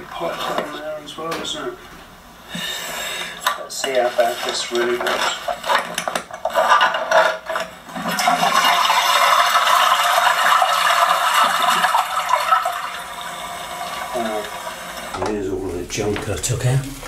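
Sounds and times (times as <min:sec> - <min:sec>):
debris scraping and rattling: 0:03.7 - 0:09.4.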